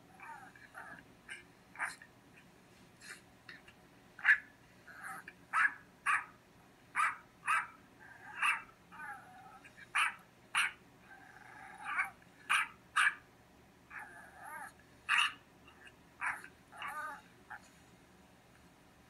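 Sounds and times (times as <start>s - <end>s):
dog whining: 0.1s - 2.0s, 4.9s - 5.3s, 8.0s - 9.8s, 13.9s - 14.8s, 15.8s - 17.7s
dog barking: 0.2s - 2.0s, 4.2s - 6.4s, 7.0s - 7.8s, 8.4s - 8.7s, 9.9s - 10.8s, 11.8s - 13.2s, 15.1s - 15.4s, 16.2s - 17.2s.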